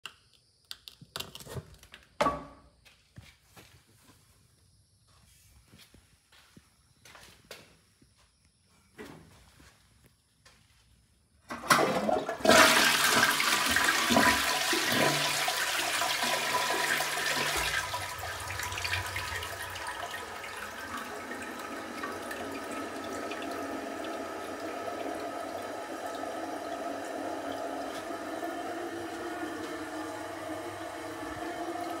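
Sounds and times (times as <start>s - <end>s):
toilet flushing: 11.5s - 32.0s
toilet refilling: 11.5s - 32.0s.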